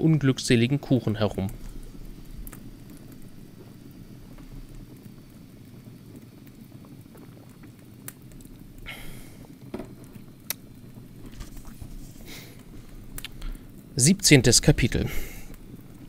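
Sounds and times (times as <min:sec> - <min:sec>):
low background noise: 0:00.0 - 0:16.0
person sipping tea: 0:08.6 - 0:13.8.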